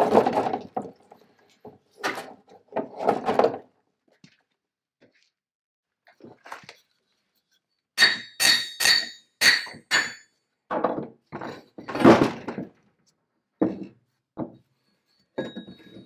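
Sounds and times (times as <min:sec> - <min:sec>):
dull knocks and scraping: 0:13.6 - 0:14.7.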